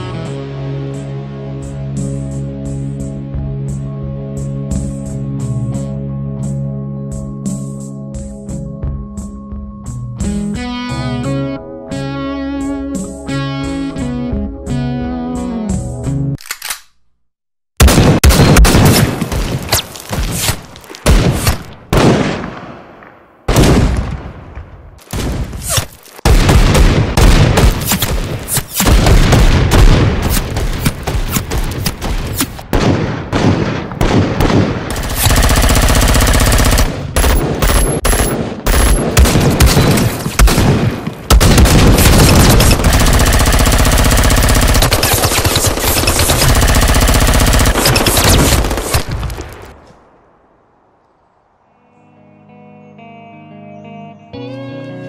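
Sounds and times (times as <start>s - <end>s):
gunshots with echoes: 17.8s - 25.7s, 26.3s - 49.2s
rapid automatic gunfire: 26.3s - 49.1s.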